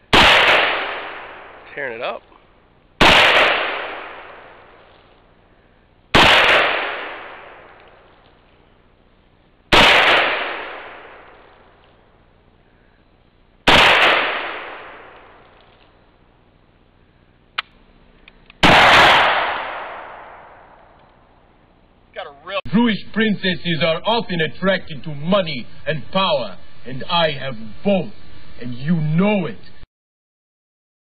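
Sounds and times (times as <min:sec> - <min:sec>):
rifle shots: 0:00.1 - 0:02.0, 0:03.0 - 0:05.0, 0:06.1 - 0:08.4, 0:09.7 - 0:12.0, 0:13.6 - 0:16.0, 0:18.6 - 0:21.3.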